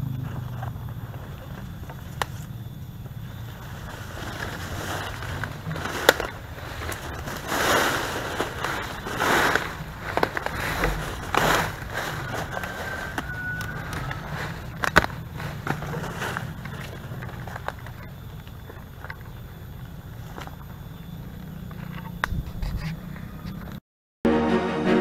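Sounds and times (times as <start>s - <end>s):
footsteps through rustling leaves: 3.5s - 17.5s.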